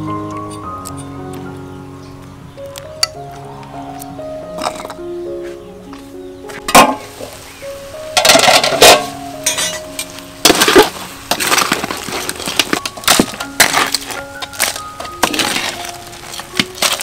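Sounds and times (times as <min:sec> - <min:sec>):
crab shells clattering: 0:08.2 - 0:17.0.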